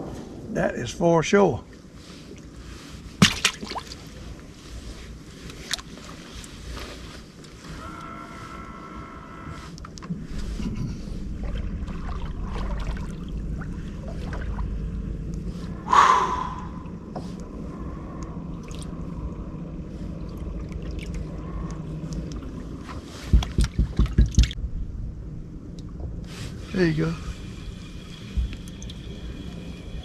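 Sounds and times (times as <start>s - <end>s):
fishing boat engine hum: 0.3s - 30.0s.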